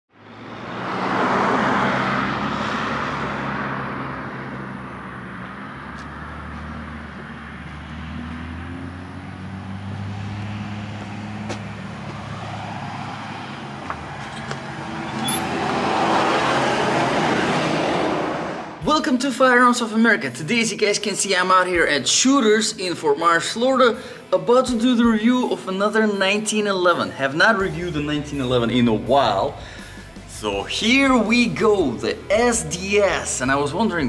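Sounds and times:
vehicles passing: 0.1 - 19.0, 23.7 - 25.2, 26.8 - 34.0
low engine hum: 0.2 - 18.8.

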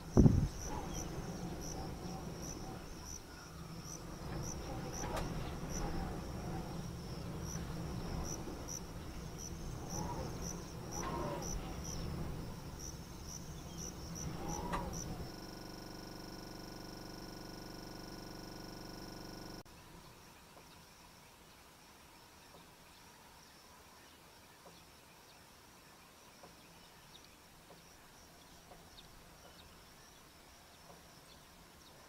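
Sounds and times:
insects chirping: 0.0 - 19.6
short insect calls: 0.0 - 19.6
steady hum: 0.0 - 19.6.

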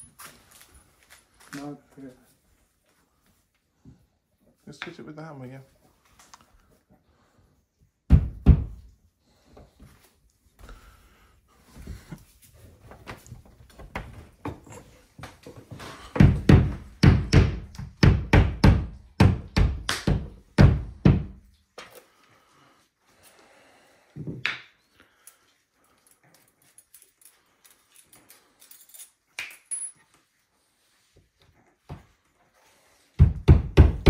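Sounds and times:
mallet knocking wall anchors: 16.1 - 21.4, 33.2 - 34.0.

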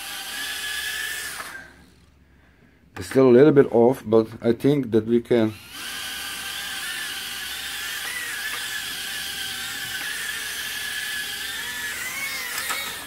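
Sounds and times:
quadcopter motors whining: 0.0 - 2.1, 5.5 - 13.0.

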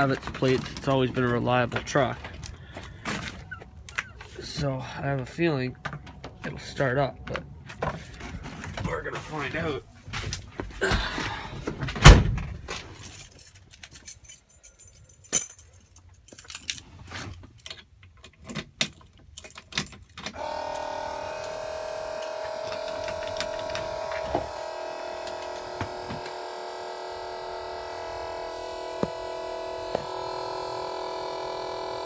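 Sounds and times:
keys jangling at ignition: 12.9 - 20.8
dashboard warning buzzer: 20.4 - 32.0.

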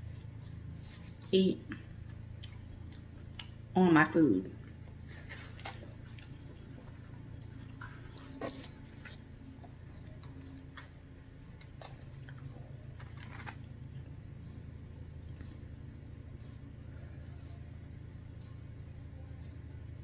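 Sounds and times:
quiet chewing: 0.0 - 3.7, 4.6 - 14.6
steady low hum: 0.0 - 20.0.

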